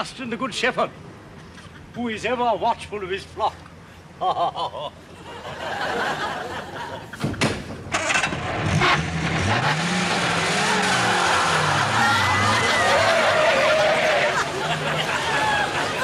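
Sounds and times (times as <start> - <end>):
sharp knocks: 7.2 - 8.0
car engine revving: 7.9 - 15.2.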